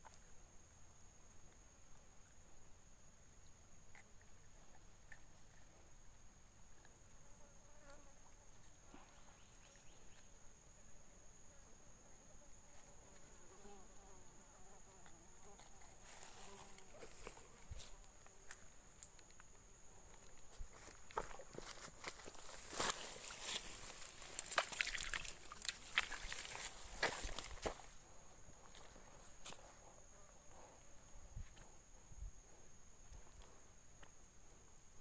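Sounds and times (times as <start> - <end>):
insects droning: 0.0 - 35.0.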